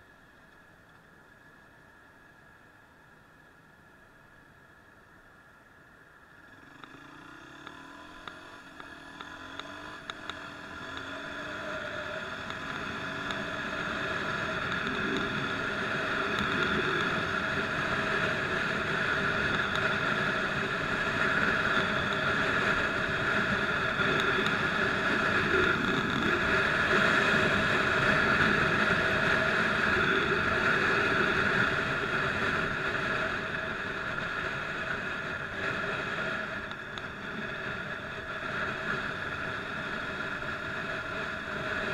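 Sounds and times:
motorcycle engine running: 0:06.3 - 0:41.9.

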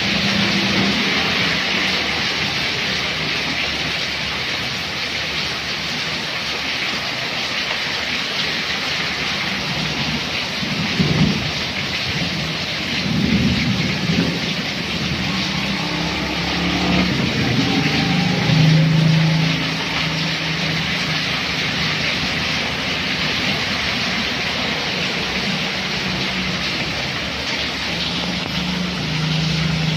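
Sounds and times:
heavy rain falling: 0:00.0 - 0:29.9
low rumbles: 0:10.8 - 0:29.9
motorbike engine passing: 0:13.3 - 0:23.8.

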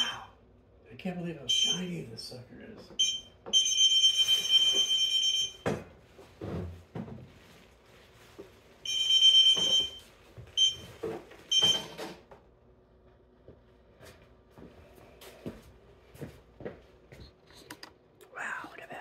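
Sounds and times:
high-pitched alarm beeps: 0:01.5 - 0:01.9, 0:03.0 - 0:05.7, 0:08.9 - 0:10.9.

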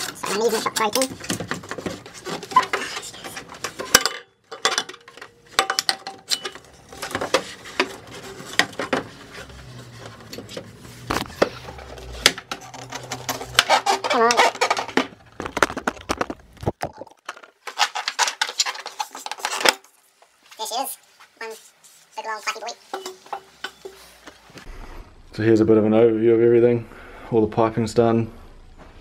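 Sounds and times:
metallic clinks and rattles of tools: 0:02.5 - 0:07.3.

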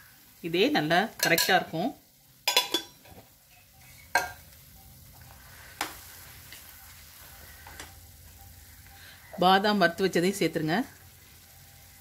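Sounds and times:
faint frying sizzle: 0:00.0 - 0:12.0
spoon knocking against pan: 0:04.1 - 0:04.4.

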